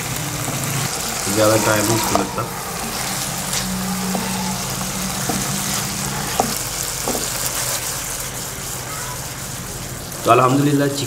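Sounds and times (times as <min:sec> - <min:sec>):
steady low hum: 0:00.0 - 0:10.3
chicken sizzling in a frying pan: 0:00.0 - 0:11.0
wooden spatula knocking on pan: 0:04.1 - 0:07.4.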